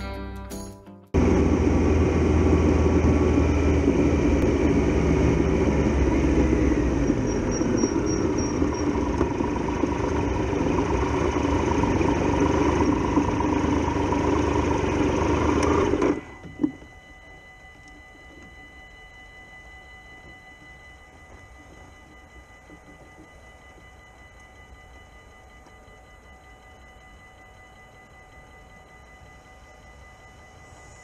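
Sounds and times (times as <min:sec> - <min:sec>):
motorcycle engine running: 0:01.2 - 0:16.3.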